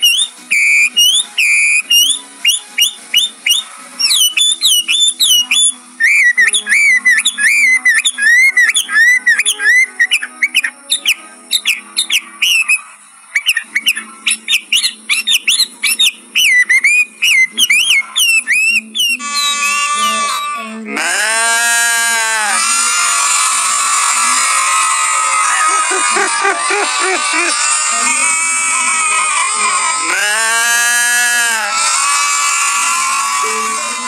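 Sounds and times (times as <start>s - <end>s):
bird singing whistled song: 0.0s - 20.6s.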